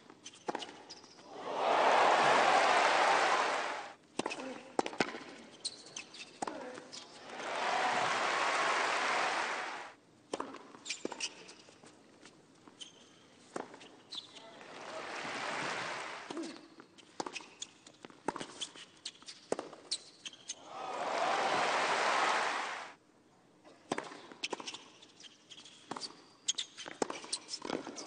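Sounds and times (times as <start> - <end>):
crowd cheering and applauding: 1.3 - 4.0, 7.2 - 9.9, 14.7 - 16.3, 20.6 - 23.0.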